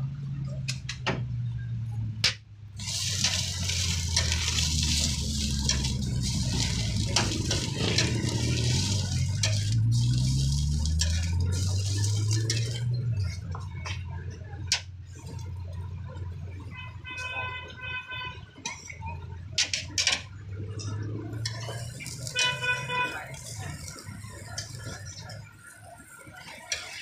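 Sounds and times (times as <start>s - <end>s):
spatula scraping metal plate: 2.8s - 13.5s
patty sizzling on griddle: 2.8s - 16.3s, 18.6s - 27.0s.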